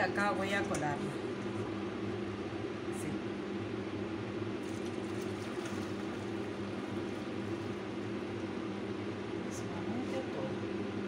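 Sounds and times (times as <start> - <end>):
low background hum: 0.0 - 11.0
milk pouring through strainer: 4.6 - 9.3.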